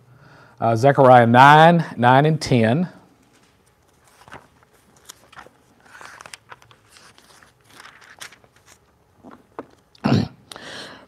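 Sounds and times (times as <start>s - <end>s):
paper pages rustling: 3.2s - 9.9s.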